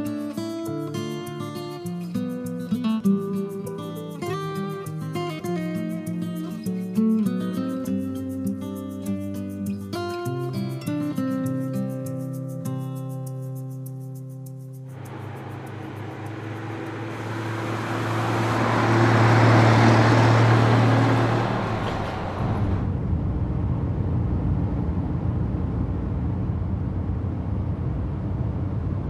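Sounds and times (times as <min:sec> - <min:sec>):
truck driving past: 0:14.9 - 0:29.0
truck engine rumbling from cab: 0:14.9 - 0:29.0.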